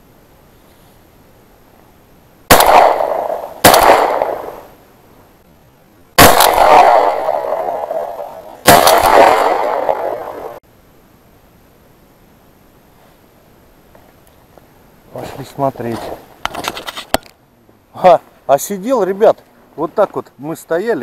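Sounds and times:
shotgun shots echoing: 2.5s - 4.7s, 6.2s - 10.6s.

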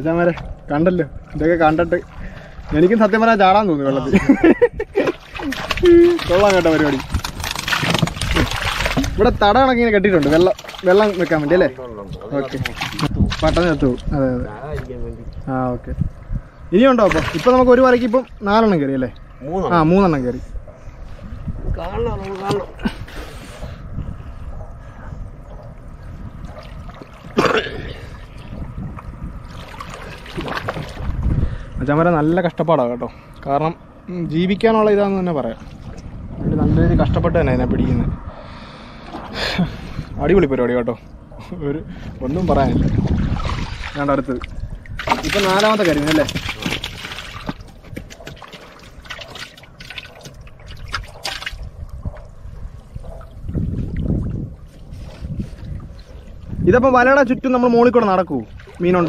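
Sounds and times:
water lapping against a boat: 0.0s - 3.6s, 4.8s - 14.1s, 20.5s - 31.8s, 35.3s - 36.5s, 41.0s - 59.0s
water splash: 5.0s - 9.2s, 10.1s - 11.7s, 16.9s - 18.2s, 29.4s - 31.2s, 42.8s - 51.6s.

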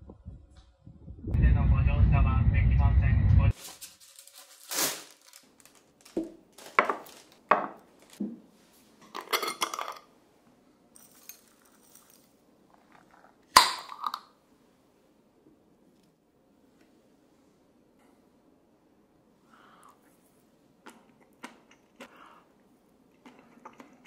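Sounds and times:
rustling: 3.5s - 8.9s.

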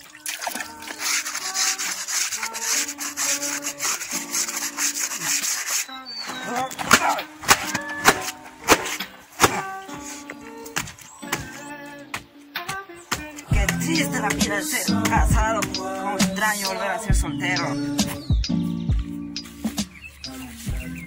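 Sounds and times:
background music: 0.0s - 21.0s
brush scrubbing cloth: 0.3s - 10.2s.

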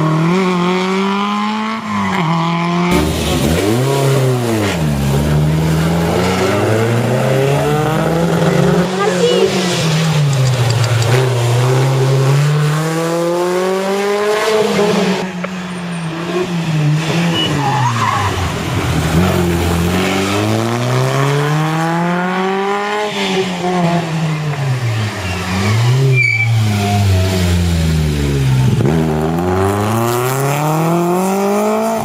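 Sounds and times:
rally car engine revving: 0.0s - 32.0s
tyre squeal: 17.2s - 18.6s, 24.9s - 27.5s.

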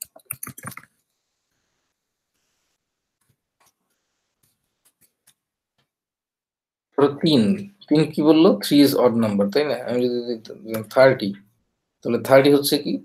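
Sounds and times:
keyboard typing clicks: 0.0s - 0.9s.

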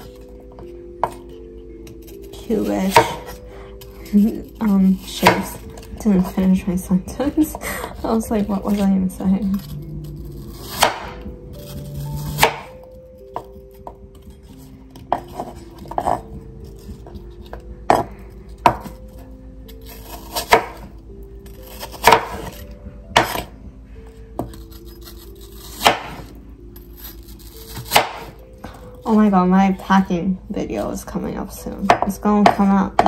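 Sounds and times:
knife chopping on wooden board: 2.9s - 3.4s, 5.2s - 5.9s, 10.6s - 11.3s, 12.2s - 12.8s, 17.0s - 19.0s, 20.1s - 20.9s, 21.7s - 22.6s, 23.2s - 23.5s, 25.7s - 26.3s, 27.6s - 28.3s.

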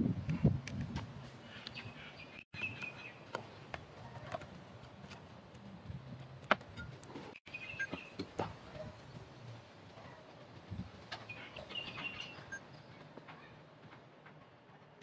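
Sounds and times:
birds chirping: 1.4s - 4.3s, 7.5s - 13.6s.

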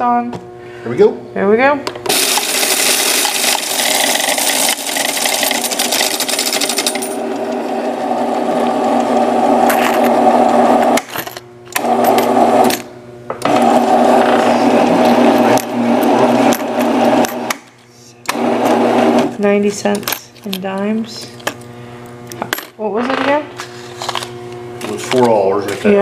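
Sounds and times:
coin counter motor whirring: 2.0s - 20.3s
coins clattering through machine: 2.1s - 7.2s.

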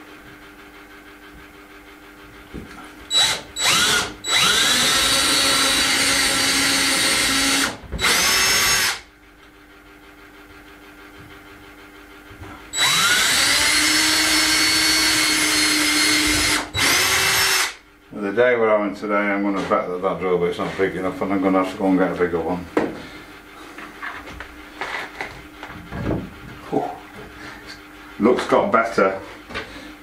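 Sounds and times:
cordless drill boring wood: 3.1s - 9.1s, 12.7s - 17.8s.

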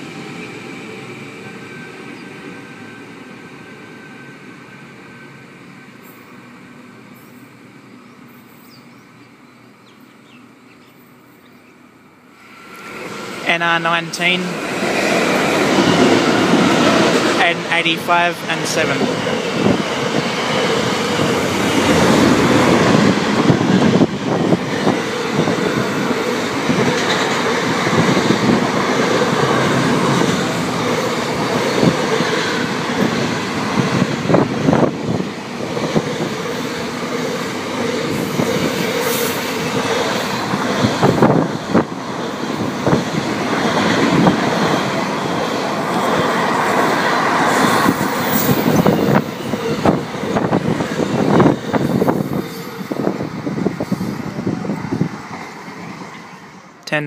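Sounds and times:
train wheels rumbling on rail: 12.4s - 56.8s.

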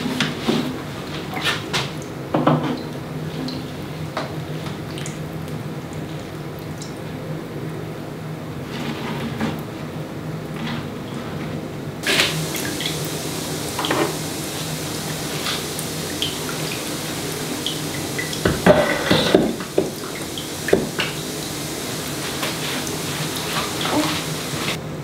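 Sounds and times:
water pouring from watering can: 12.0s - 24.8s
knocks and clatter of pots: 18.4s - 20.1s.

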